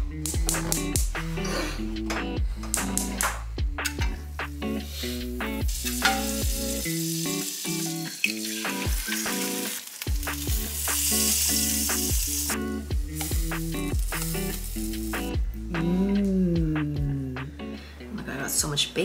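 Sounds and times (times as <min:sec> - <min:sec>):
background music with beat: 0:00.0 - 0:18.0
egg sizzling in oil: 0:05.7 - 0:15.3.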